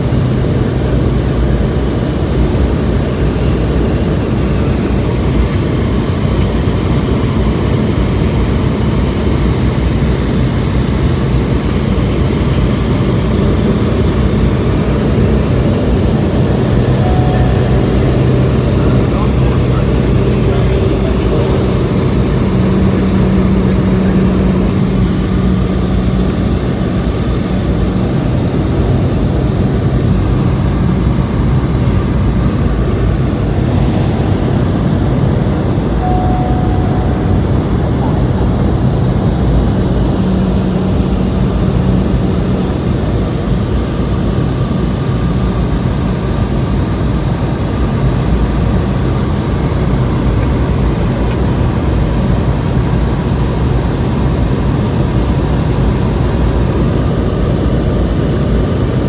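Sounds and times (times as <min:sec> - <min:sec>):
propeller plane engine drone: 0:00.0 - 0:59.0
thin high whine: 0:12.0 - 0:44.7.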